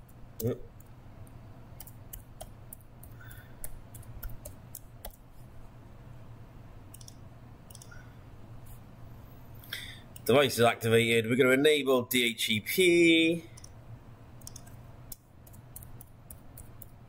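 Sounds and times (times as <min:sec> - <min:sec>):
mouse and keyboard clicks: 0:01.8 - 0:05.2, 0:06.9 - 0:08.0, 0:14.4 - 0:17.0.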